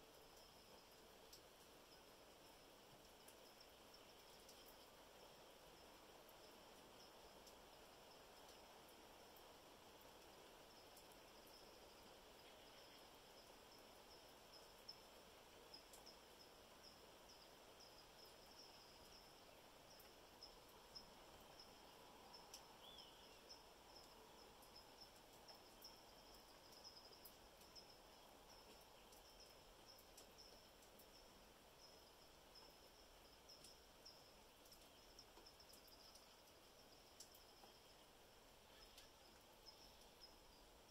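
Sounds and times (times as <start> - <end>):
insect trill: 0.0 - 40.9
water dripping: 0.0 - 40.9
bird chirp: 22.8 - 23.6.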